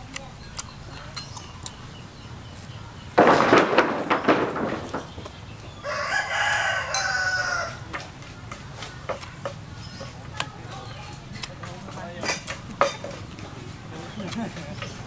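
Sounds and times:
rooster crowing: 5.8 - 7.9.

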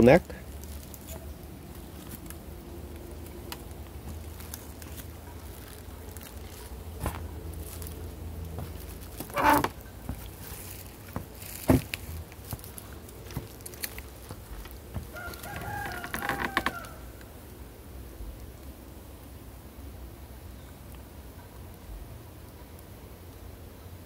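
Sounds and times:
footsteps on dry leaves: 0.4 - 17.0
rooster crowing: 15.0 - 17.2.

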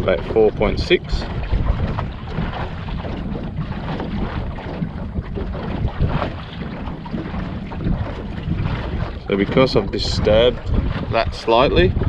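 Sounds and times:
low rumble of boat moving: 0.0 - 12.0
wind buffeting microphone: 0.0 - 12.0.

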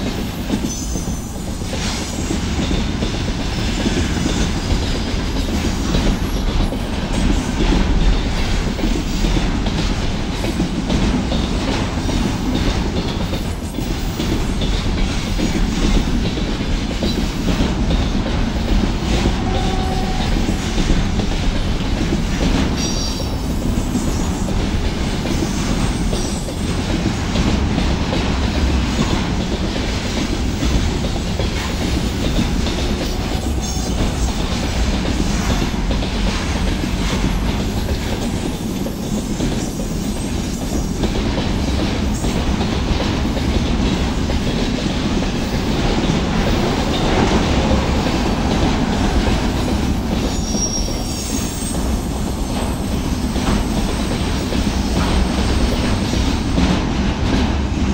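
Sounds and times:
train wheels rumbling on rails: 0.0 - 57.9
high wheel squeal: 50.3 - 52.8.

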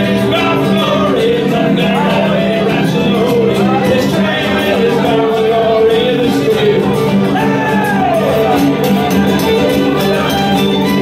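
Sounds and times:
strummed acoustic guitar: 0.0 - 11.0
fiddle: 4.8 - 11.0.

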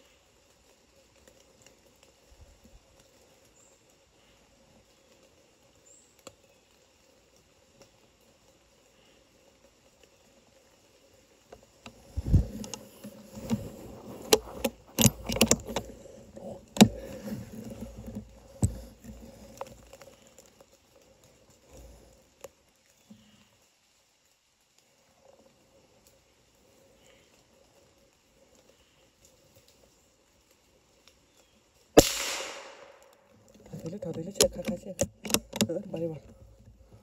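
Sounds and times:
rifle handling clicks and knocks: 11.8 - 20.2, 32.0 - 36.9.

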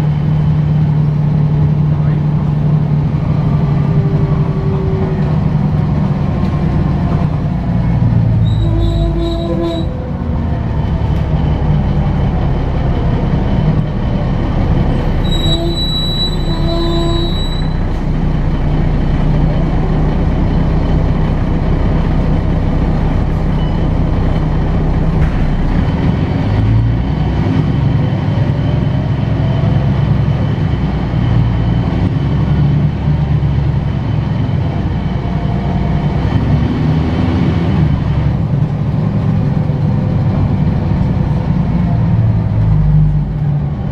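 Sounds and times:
bus engine drone: 0.0 - 43.9.

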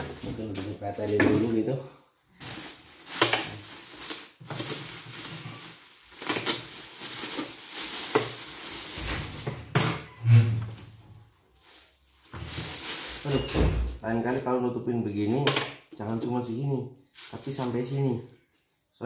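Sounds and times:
plastic bag crinkling: 2.3 - 9.8, 10.6 - 15.3, 17.1 - 18.8.

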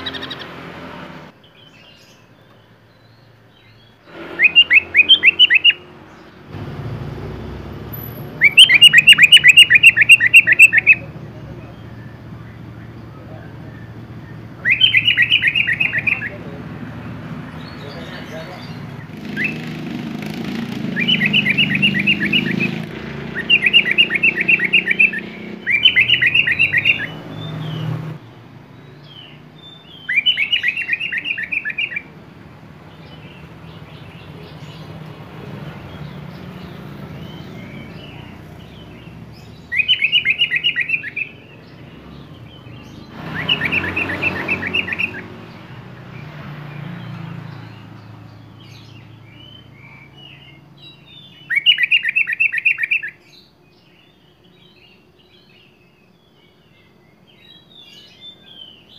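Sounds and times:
bulbul singing rapid notes: 4.2 - 5.8, 8.2 - 13.0, 14.6 - 16.5, 18.6 - 28.1, 37.2 - 45.3
faint bird calls: 7.9 - 16.7, 20.8 - 28.0.

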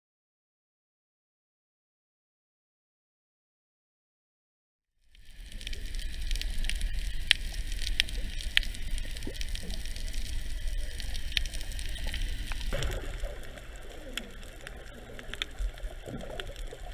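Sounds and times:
muffled underwater rumble: 5.1 - 16.9
underwater clicks and crackles: 5.1 - 16.9.

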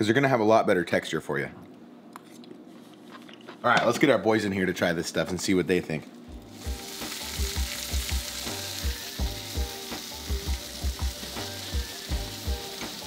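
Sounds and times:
background music with steady beat: 6.2 - 13.0
food sizzling in a pan: 6.4 - 13.0.

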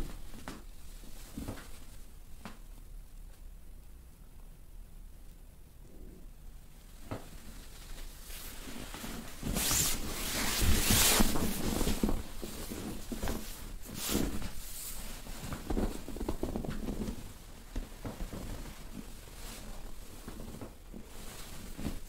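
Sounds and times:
fabric rustling: 0.0 - 2.9, 6.8 - 22.0.

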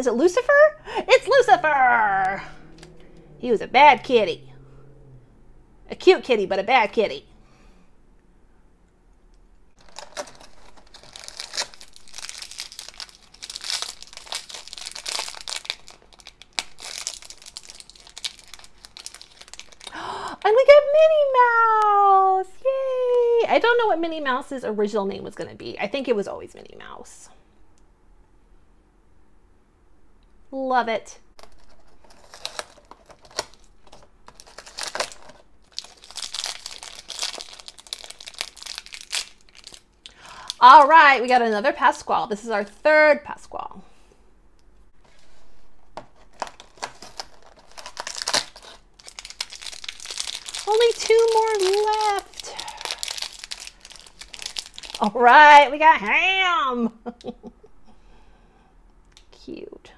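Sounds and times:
foil bag crinkling and tearing: 9.8 - 20.0, 31.4 - 41.0, 46.2 - 55.6
plastic wrapper crackling: 9.8 - 20.0, 31.4 - 41.4, 46.1 - 55.4.

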